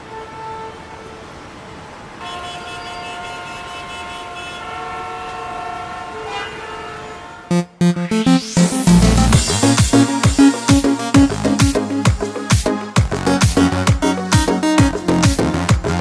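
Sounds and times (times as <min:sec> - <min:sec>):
city noise hiss: 0:00.0 - 0:14.7
held horn chord: 0:04.7 - 0:16.0
loud music: 0:07.5 - 0:16.0.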